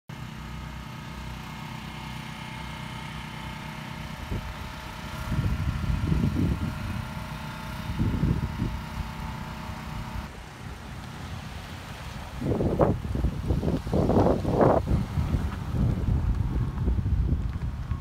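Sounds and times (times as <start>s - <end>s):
engine idling: 0.1s - 18.0s
wind buffeting microphone: 4.2s - 9.2s, 12.2s - 18.0s.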